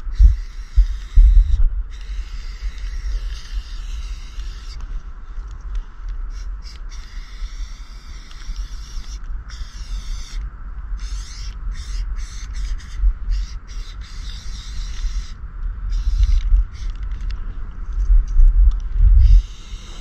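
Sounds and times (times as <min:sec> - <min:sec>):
low rumble: 0:00.0 - 0:06.5, 0:10.4 - 0:20.0
spray paint can hissing: 0:00.2 - 0:04.8, 0:06.3 - 0:10.4, 0:11.0 - 0:17.1, 0:19.2 - 0:20.0.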